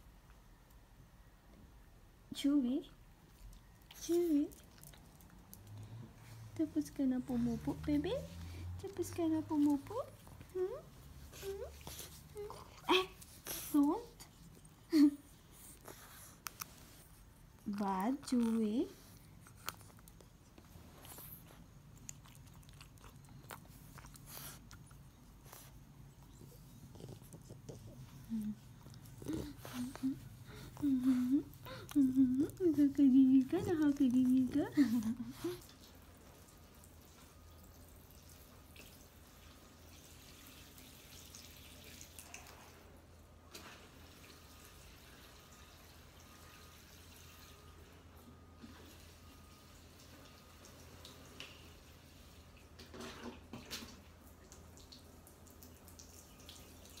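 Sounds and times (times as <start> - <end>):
dog chewing cloth: 18.4 - 25.5
water trickling onto plants: 30.8 - 42.7, 54.1 - 57.0.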